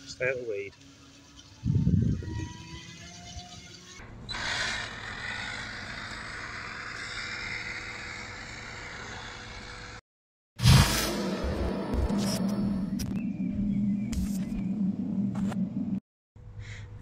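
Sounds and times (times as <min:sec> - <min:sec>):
toy boat electric motor whirring: 0:00.0 - 0:10.0.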